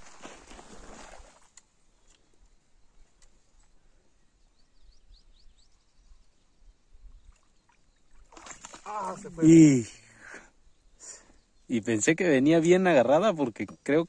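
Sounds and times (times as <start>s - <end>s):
bird chirping: 2.7s - 9.5s.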